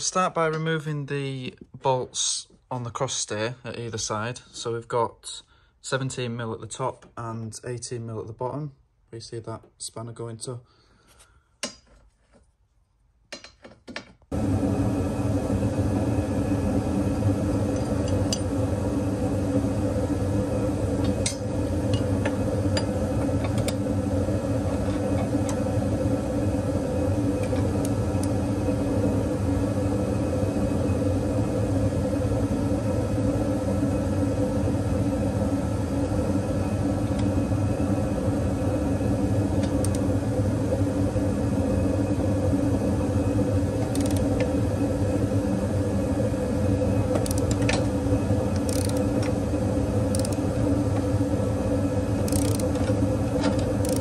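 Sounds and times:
steady mechanical hum: 0.0s - 54.0s
spanner clicking on bolts: 43.8s - 44.3s, 47.2s - 47.8s, 48.6s - 49.0s, 50.1s - 50.4s, 52.3s - 52.9s, 53.8s - 54.0s.

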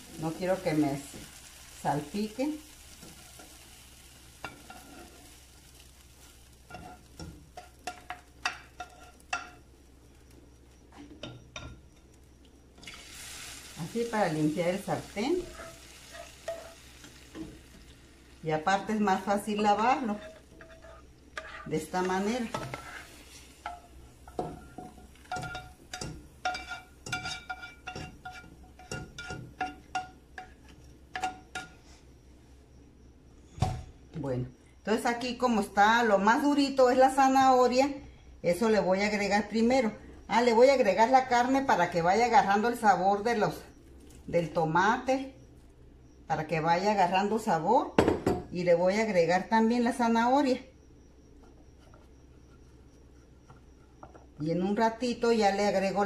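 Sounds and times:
spoon tapping metal pan: 6.7s - 9.6s, 23.6s - 31.8s
plastic spatula scraping a pan: 20.0s - 23.5s.

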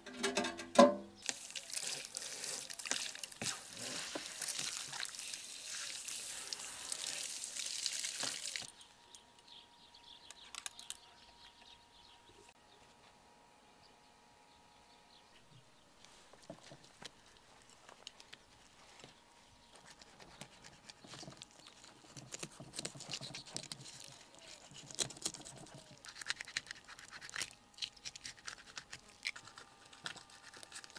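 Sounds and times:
hose spray hissing and splashing: 1.2s - 8.7s.

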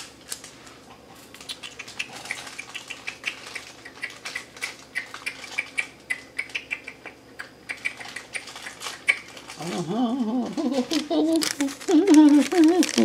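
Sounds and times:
plastic packaging crackling: 8.0s - 13.0s.

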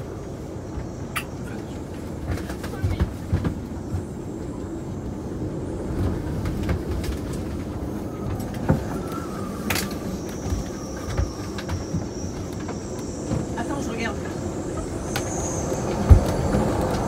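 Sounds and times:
storm wind rumble: 0.0s - 17.0s
thin high whistle: 8.1s - 17.0s.

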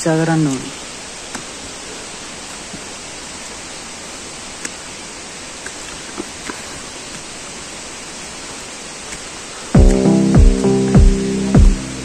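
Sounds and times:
falling water hiss: 0.0s - 12.0s.

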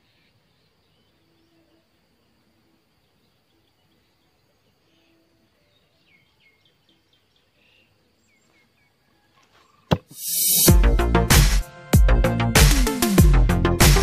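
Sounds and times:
faint birds chirping: 0.0s - 10.7s
loud rushing hiss: 10.0s - 11.6s
electronic music: 10.0s - 14.0s.

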